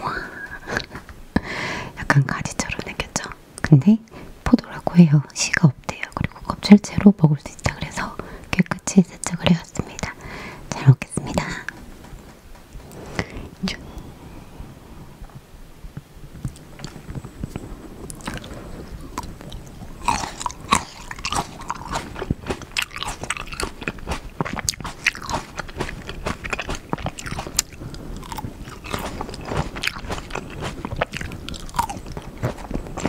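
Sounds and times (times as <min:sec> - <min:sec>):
grapes being bitten and chewed: 0:16.4 - 0:33.0.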